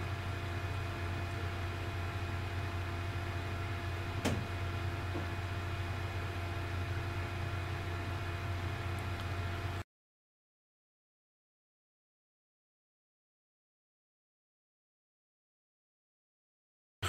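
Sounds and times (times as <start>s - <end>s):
low mechanical hum: 0.0s - 9.8s.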